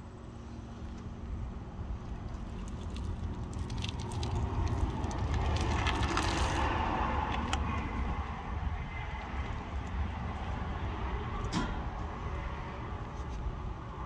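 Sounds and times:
steady low rumble: 0.0s - 14.0s
light clicks and crinkles: 2.0s - 7.9s.

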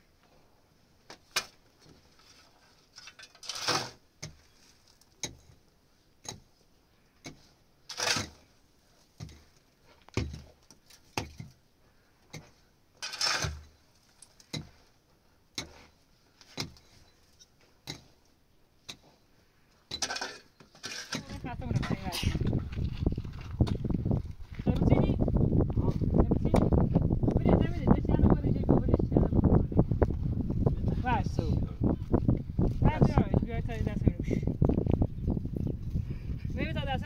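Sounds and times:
shovel scraping stony earth: 1.3s - 5.6s, 7.3s - 11.5s, 12.3s - 14.8s, 15.6s - 18.1s, 19.9s - 23.9s.

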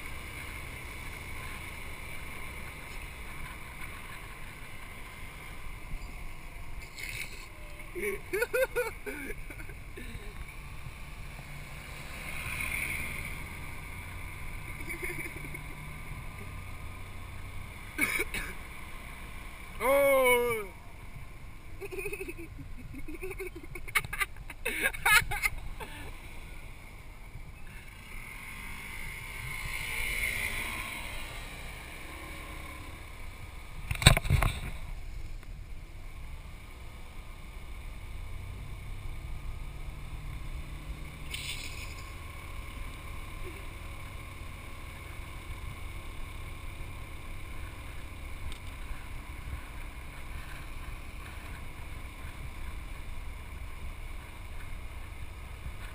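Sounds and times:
scooter engine running: 0.0s - 55.9s
wind rush and road noise: 18.6s - 43.0s, 44.1s - 55.9s.

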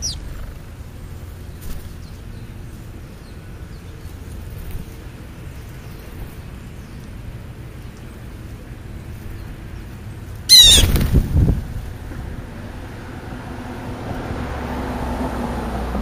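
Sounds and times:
burst of bird wingbeats: 10.5s - 11.7s.

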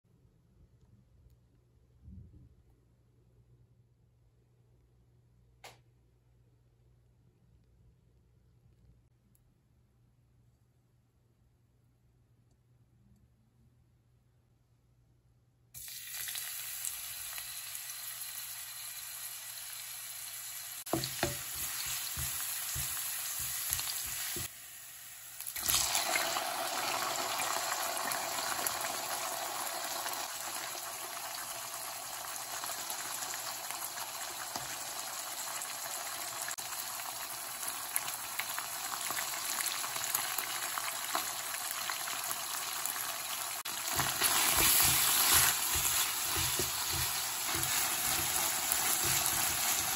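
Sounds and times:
food sizzling in hot oil: 15.8s - 49.9s
wooden spoon scraping a wok: 43.8s - 49.9s.

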